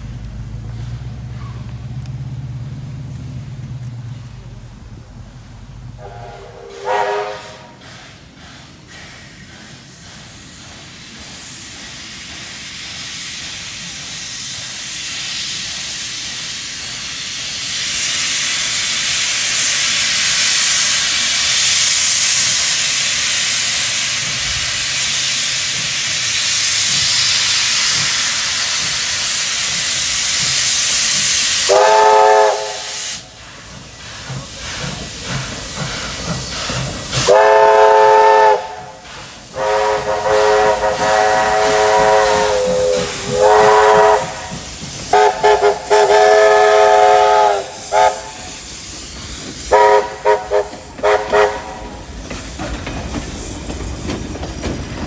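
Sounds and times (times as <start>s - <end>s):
steam hiss: 3.9s - 55.0s
steam locomotive whistle: 6.0s - 8.0s, 31.0s - 33.2s, 37.1s - 48.6s, 49.7s - 52.0s.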